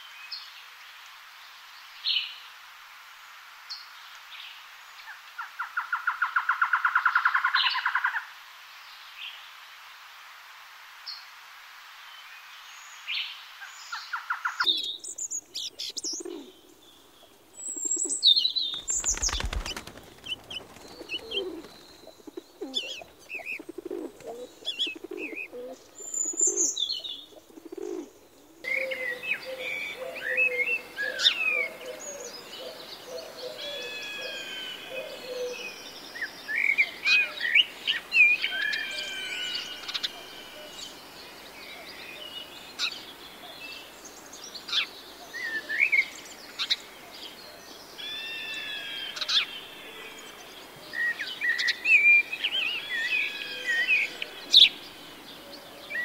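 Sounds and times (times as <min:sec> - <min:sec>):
birds whistling and chirping: 0:17.6 - 0:27.2
wing flapping: 0:18.6 - 0:25.2
pigeon cooing: 0:20.8 - 0:25.8, 0:27.4 - 0:28.1, 0:28.7 - 0:35.7.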